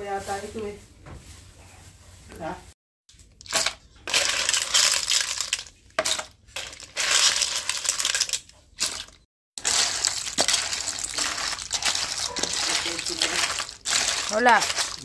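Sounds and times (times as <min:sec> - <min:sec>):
snails clattering in water: 0:03.4 - 0:15.0.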